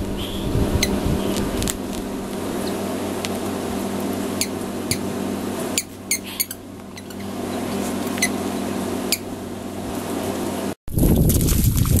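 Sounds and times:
steady low hum: 0.0s - 11.4s
squeaky toy squeaking: 5.8s - 7.2s.

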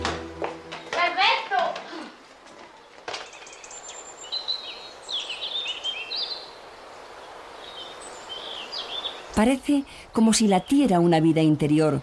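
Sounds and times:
faint steady hiss: 0.0s - 12.0s
small birds chirping: 2.7s - 11.4s.

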